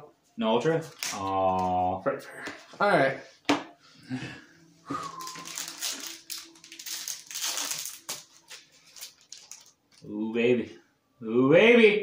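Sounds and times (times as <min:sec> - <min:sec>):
cards being handled: 0:00.8 - 0:01.7, 0:05.1 - 0:10.1
foil wrapper crinkling: 0:05.0 - 0:10.1.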